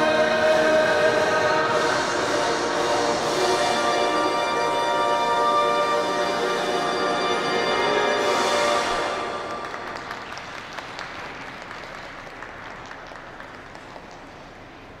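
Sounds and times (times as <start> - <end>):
music final chord: 0.0 - 10.0
scattered applause: 8.9 - 15.0.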